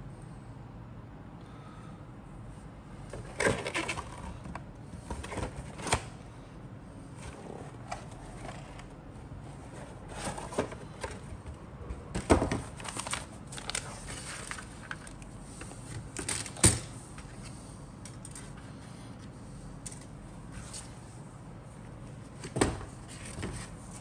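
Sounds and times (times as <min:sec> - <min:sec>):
paper and plastic rustling: 0:09.6 - 0:11.3, 0:12.3 - 0:16.6.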